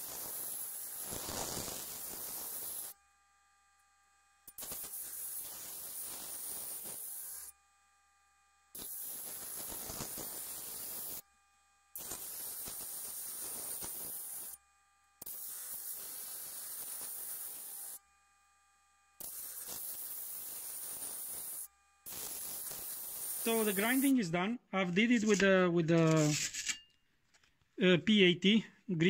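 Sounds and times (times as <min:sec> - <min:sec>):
blade grinding on sanding disc: 0:04.7 - 0:07.5, 0:12.0 - 0:14.6, 0:15.2 - 0:18.0, 0:19.2 - 0:24.3.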